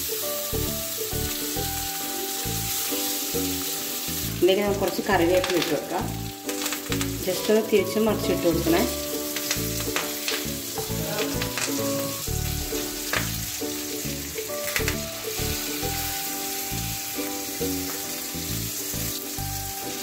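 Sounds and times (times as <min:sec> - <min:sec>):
food sizzling in oil: 0:00.0 - 0:20.0.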